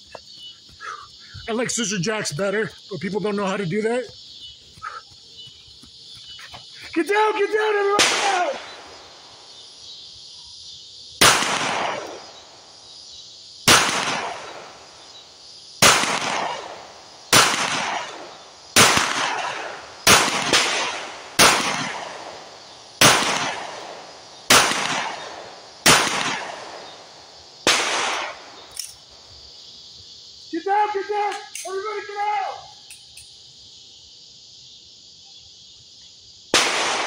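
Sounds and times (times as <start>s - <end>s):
pistol shots echoing: 8.0s - 8.9s, 11.2s - 12.2s, 13.7s - 14.6s, 15.8s - 26.9s, 27.6s - 28.5s, 36.6s - 37.0s.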